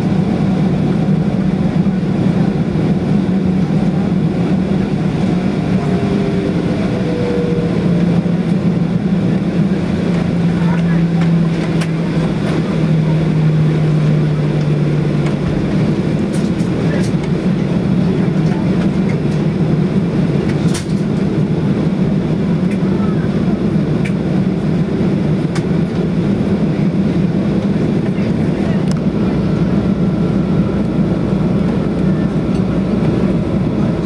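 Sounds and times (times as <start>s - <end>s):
low droning tone: 0.0s - 20.5s
jet engine cabin hum: 0.0s - 34.0s.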